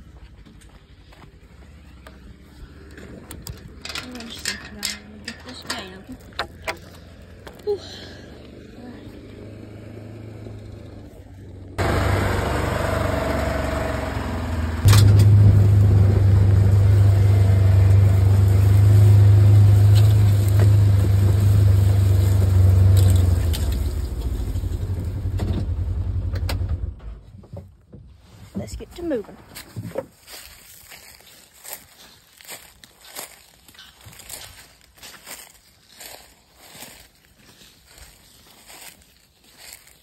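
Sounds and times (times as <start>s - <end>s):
vehicle engine drone: 0.0s - 27.3s
rattly road noise: 0.0s - 40.0s.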